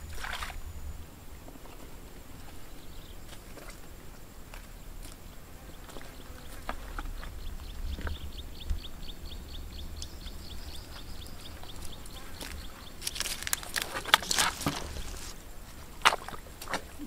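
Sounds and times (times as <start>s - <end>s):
bare feet squelching in mud: 12.4s - 17.0s.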